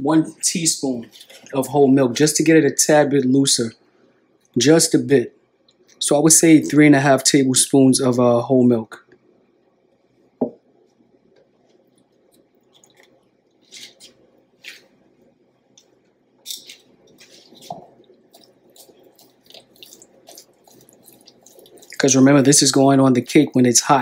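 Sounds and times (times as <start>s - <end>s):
whisk stirring thick glaze: 0.9s - 1.8s, 16.5s - 24.0s.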